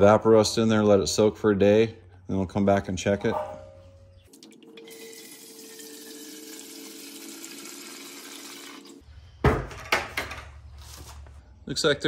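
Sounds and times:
liquid pouring into metal tank: 0:04.3 - 0:09.0.

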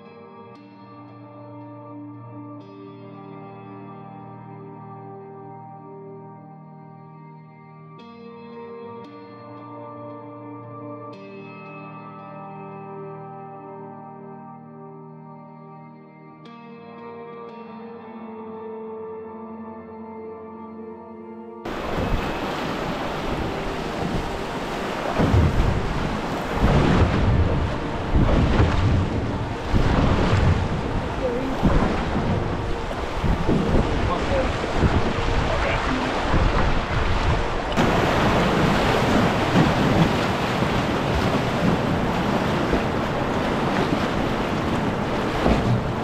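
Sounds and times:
river rapids rushing and splashing: 0:21.7 - 0:46.0
wind rumbling on microphone: 0:21.7 - 0:46.0.

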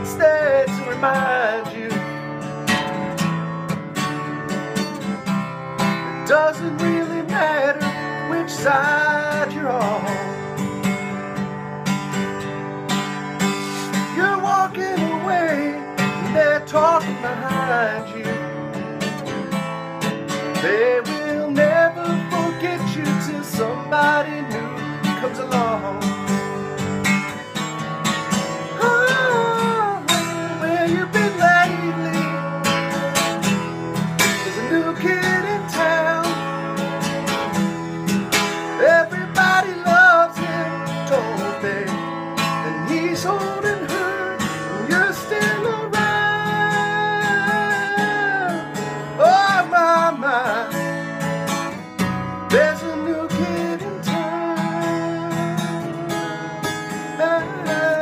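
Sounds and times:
man singing without words: 0:00.0 - 0:03.2, 0:05.8 - 0:10.8, 0:13.5 - 0:19.5, 0:20.3 - 0:26.7, 0:28.3 - 0:58.0
acoustic guitar strummed: 0:00.0 - 0:58.0.

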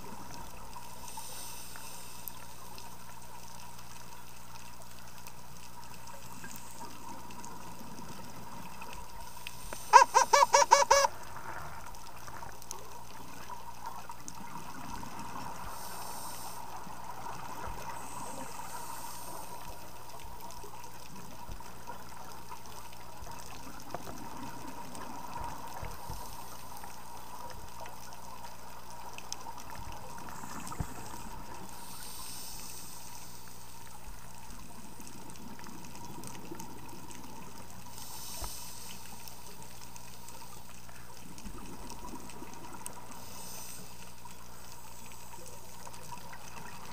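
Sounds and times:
underwater hiss: 0:00.0 - 0:03.0, 0:09.2 - 0:11.7, 0:14.4 - 0:20.2, 0:23.7 - 0:27.8, 0:28.6 - 0:40.7, 0:41.4 - 0:46.9.

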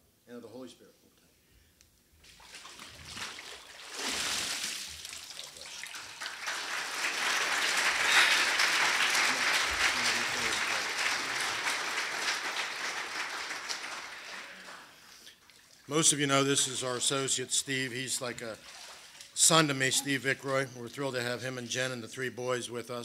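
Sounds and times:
congregation applauding: 0:04.1 - 0:15.3.

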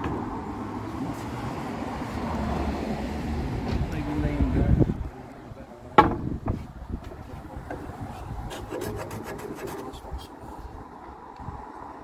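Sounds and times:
sharp knock: 0:06.0 - 0:06.3
hand plane scraping wood: 0:08.1 - 0:10.0.

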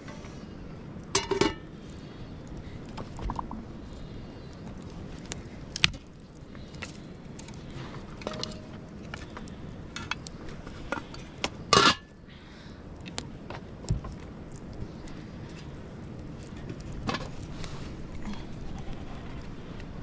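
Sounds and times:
pots and utensils clinking: 0:01.2 - 0:01.7, 0:11.8 - 0:12.1.

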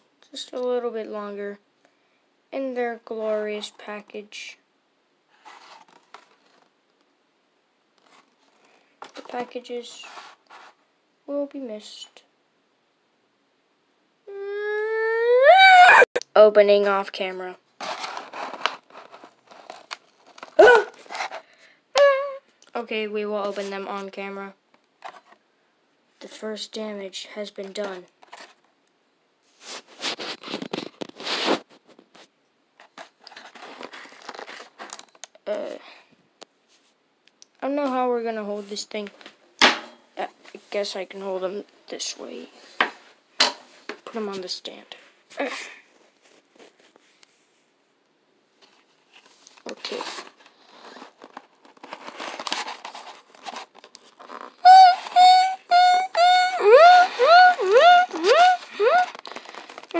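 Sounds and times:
plastic blister pack crinkling: 0:17.8 - 0:21.6, 0:33.0 - 0:35.4, 0:49.1 - 0:59.9
high voice singing: 0:54.7 - 0:59.2.

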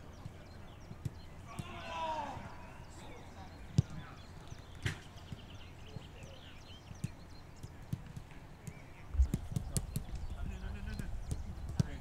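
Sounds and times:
football being kicked: 0:10.9 - 0:12.0.

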